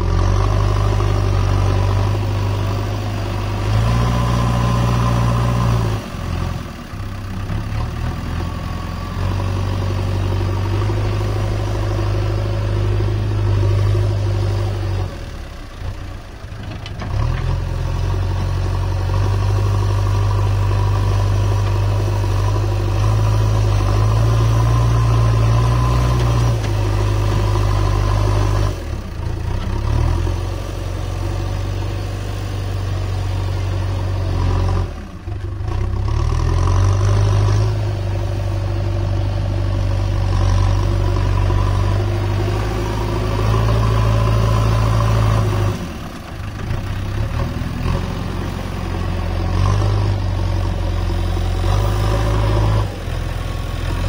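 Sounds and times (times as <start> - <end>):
diesel engine running: 0.0 - 54.0
loader bucket pushing soil: 0.0 - 54.0.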